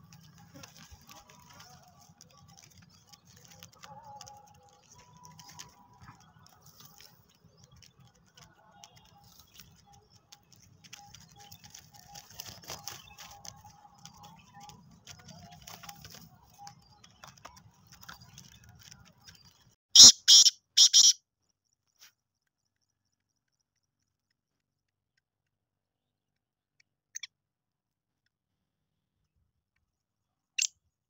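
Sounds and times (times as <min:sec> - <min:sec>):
chicks tapping and scratching: 0:00.0 - 0:19.8.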